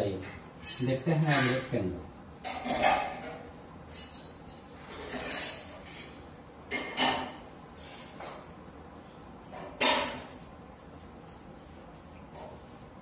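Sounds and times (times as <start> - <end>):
cloth wiping a whiteboard: 10.3 - 13.0.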